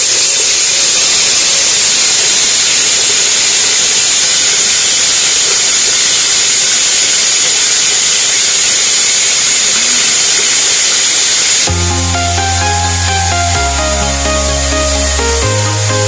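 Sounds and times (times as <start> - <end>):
mill motor rushing hiss: 0.0 - 11.7.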